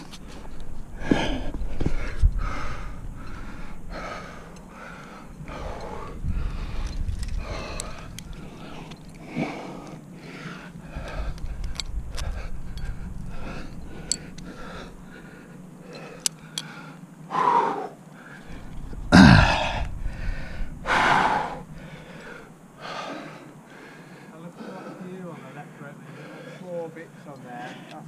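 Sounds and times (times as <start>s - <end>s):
heavy laboured breathing: 0.0s - 28.0s
person grunting: 19.1s - 19.8s.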